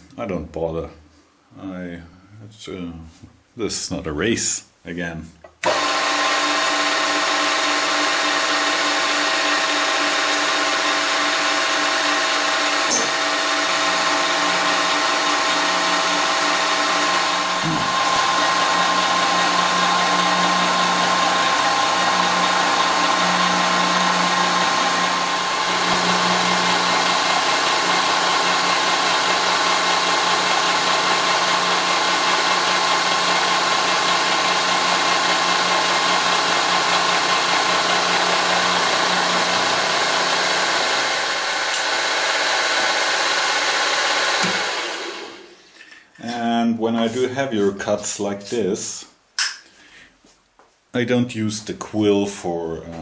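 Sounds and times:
milling machine whining: 5.6 - 45.5.

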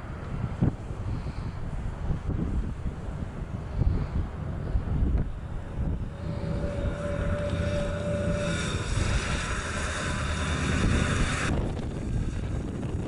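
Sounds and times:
car engine rumbling: 0.0 - 13.0
tyre and road noise: 0.0 - 13.0.

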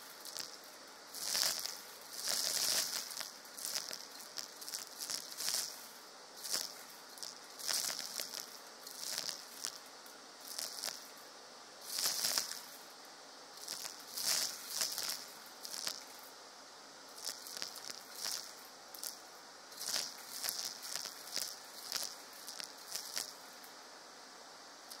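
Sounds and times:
coffee beans rattling up vacuum tube: 0.0 - 9.8, 10.4 - 11.1, 11.8 - 12.8, 13.6 - 16.2, 17.2 - 19.2, 19.8 - 23.4.

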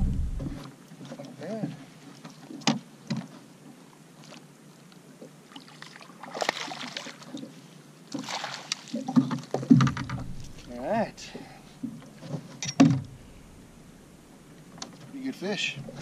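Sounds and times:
fish splashing at water surface: 5.6 - 7.3, 8.1 - 9.2.

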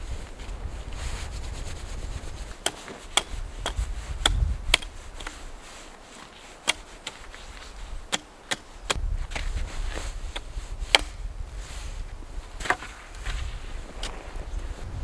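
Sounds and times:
hatchet chopping wood: 2.6 - 5.4, 6.6 - 7.2, 8.1 - 9.0, 10.4 - 11.2.

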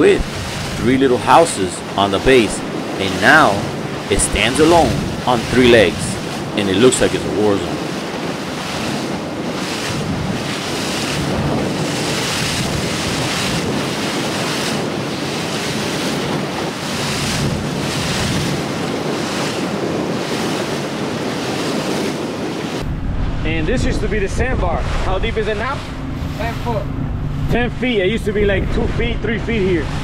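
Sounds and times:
water washing past boat hull: 0.0 - 30.0
wind on microphone: 0.0 - 30.0
low steady rumble: 22.8 - 30.0.

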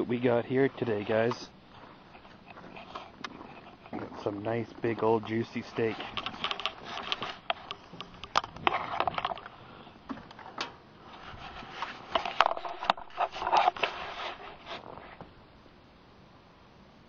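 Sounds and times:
handling noise crunching and clicking: 2.1 - 10.8, 11.8 - 15.2.

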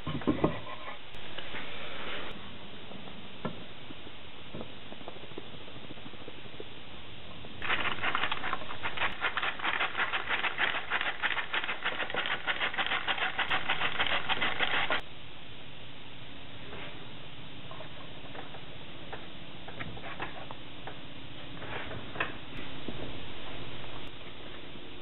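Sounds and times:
sand rattling through a sieve: 7.6 - 15.0.

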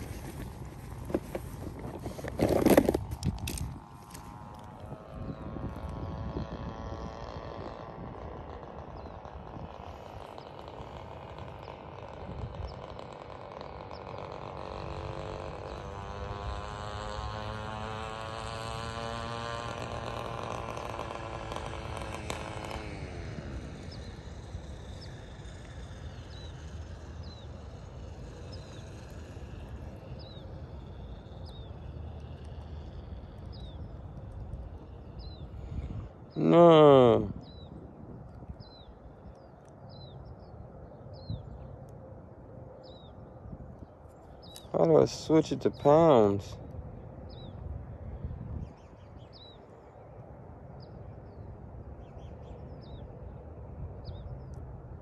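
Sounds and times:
vehicle engine passing by: 3.4 - 37.6
bird chirping: 42.8 - 46.3.

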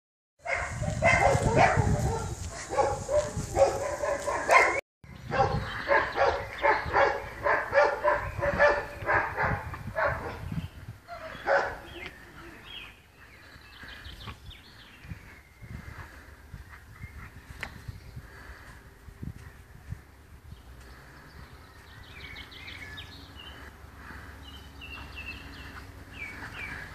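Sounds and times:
puppies barking and yipping: 0.4 - 12.2.

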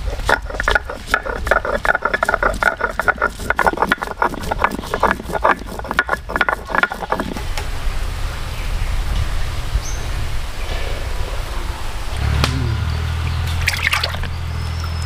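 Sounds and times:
stone roller grinding on stone: 0.0 - 7.5.

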